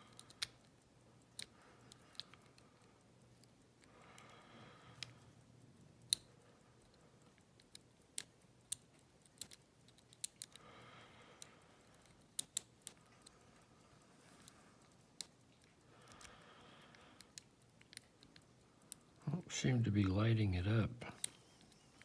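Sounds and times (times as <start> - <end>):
metallic lock picking clicks: 0.0 - 3.9, 4.9 - 10.6, 11.4 - 13.7, 14.4 - 19.2.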